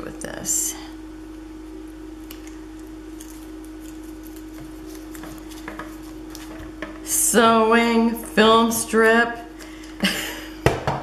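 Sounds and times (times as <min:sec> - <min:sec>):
steady hum: 0:00.0 - 0:11.0
paper rustling: 0:03.2 - 0:06.8.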